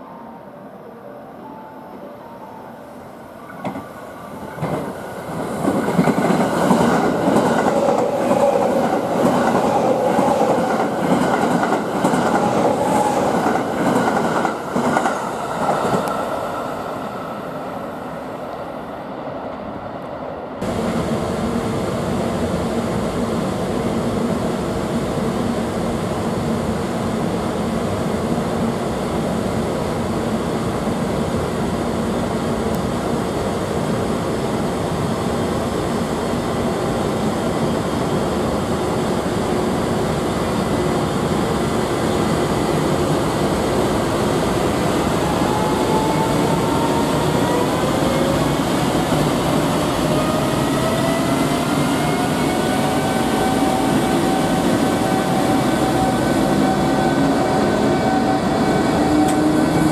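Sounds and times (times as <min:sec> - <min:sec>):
electric train passing: 0:00.0 - 0:59.9
freight train passing: 0:00.0 - 0:59.9.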